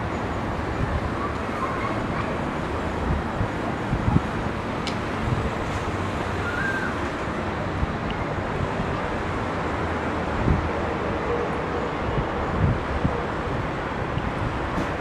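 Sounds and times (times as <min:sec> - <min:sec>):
low rumble of city traffic: 0:00.0 - 0:15.0
wind buffeting microphone: 0:00.5 - 0:15.0
faint short whistle: 0:06.4 - 0:06.9.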